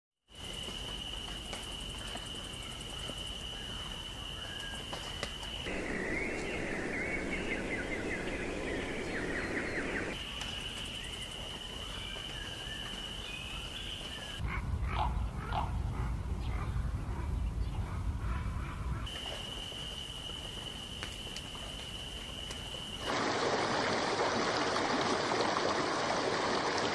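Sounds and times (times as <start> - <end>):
rapid bird chirping: 5.6 - 11.3
low rumble: 14.4 - 19.0.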